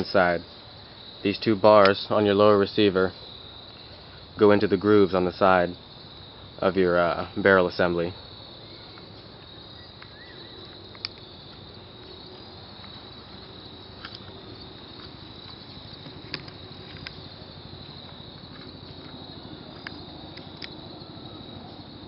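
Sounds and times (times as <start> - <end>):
insects chirring: 0.0 - 22.0
gun parts clicking together: 16.0 - 17.2.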